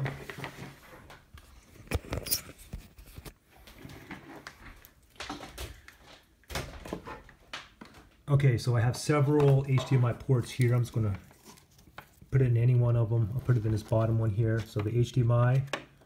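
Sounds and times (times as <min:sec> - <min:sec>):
soft rustling: 0:09.1 - 0:15.1.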